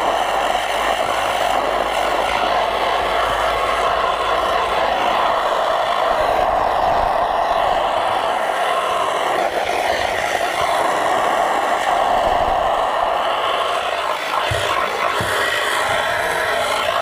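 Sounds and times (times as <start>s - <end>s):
high-pressure water jet hissing: 0.0s - 17.0s.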